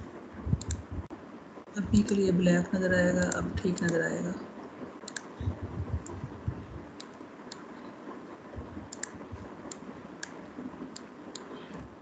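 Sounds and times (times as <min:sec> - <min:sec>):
computer mouse clicks: 0:00.6 - 0:00.8, 0:05.1 - 0:05.3, 0:08.9 - 0:11.5
dull low knocks: 0:05.4 - 0:06.9.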